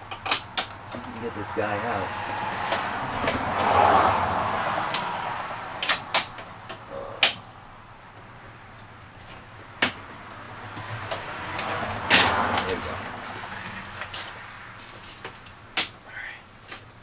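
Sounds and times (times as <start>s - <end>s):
scraping rustle: 11.6s - 15.6s.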